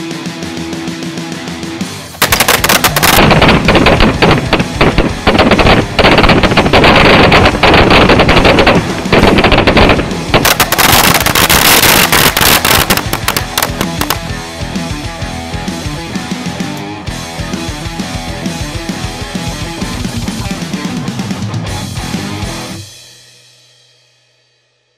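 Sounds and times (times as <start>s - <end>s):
rock music with electric guitar: 0.0s - 23.1s
firecrackers banging and crackling: 2.1s - 14.4s.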